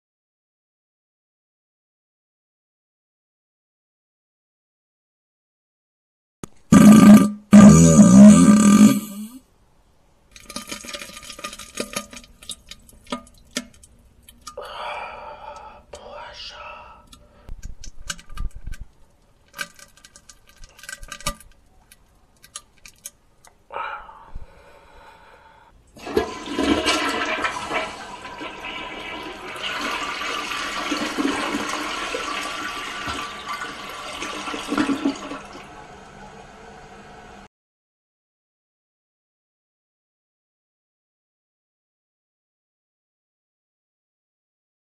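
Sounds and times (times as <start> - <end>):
wet clicks and liquid drips: 10.3 - 14.6, 17.1 - 23.6
soft breathy hiss: 14.6 - 17.6.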